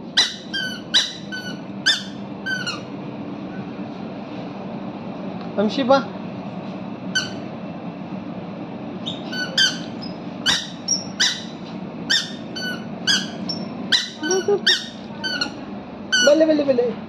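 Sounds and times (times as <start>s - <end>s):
squeaky shoes squeaking: 0.1s - 2.9s, 7.2s - 7.5s, 9.0s - 16.4s.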